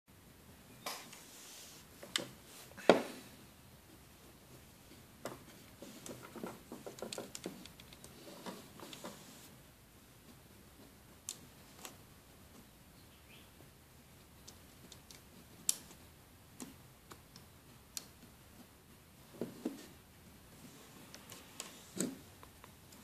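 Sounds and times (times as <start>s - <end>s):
plastic clicks and rattles: 6.0s - 9.1s.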